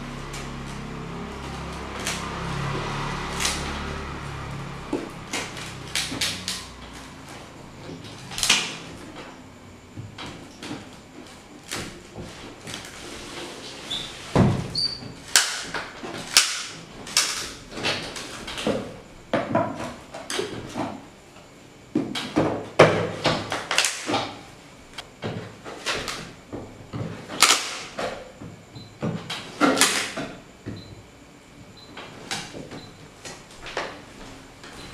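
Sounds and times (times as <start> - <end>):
blade slitting tape and cardboard: 0.2 - 4.0, 5.2 - 7.0, 12.6 - 18.8, 27.3 - 28.0.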